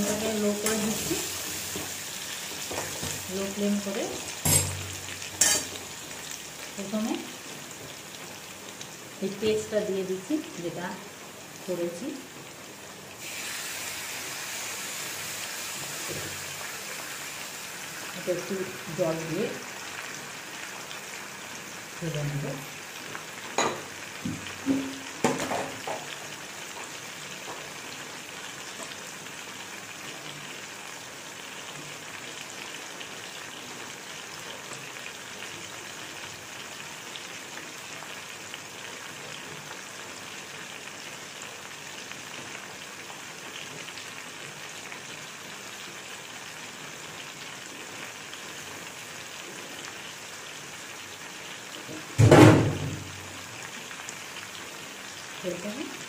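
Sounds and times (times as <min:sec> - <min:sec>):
food sizzling in a wok: 0:00.0 - 0:56.0
loud knock: 0:52.2 - 0:53.1.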